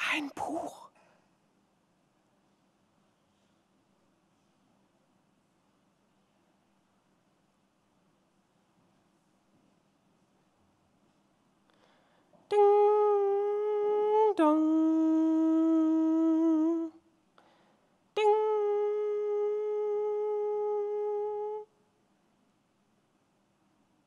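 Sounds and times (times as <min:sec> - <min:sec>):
person humming: 0:12.5 - 0:17.0, 0:18.2 - 0:21.7.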